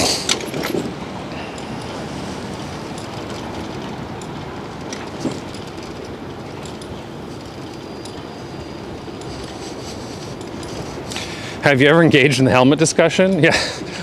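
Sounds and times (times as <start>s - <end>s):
bicycle rolling over brick path: 0.0s - 9.6s.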